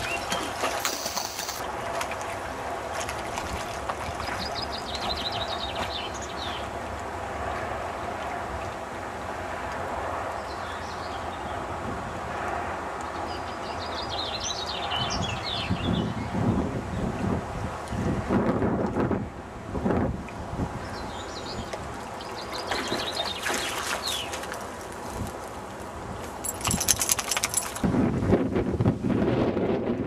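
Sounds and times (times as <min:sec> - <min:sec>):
rapid chirping trills: 0:00.8 - 0:01.6
wind noise on microphone: 0:14.8 - 0:22.0, 0:26.0 - 0:30.0
low wind buffeting: 0:25.0 - 0:30.0.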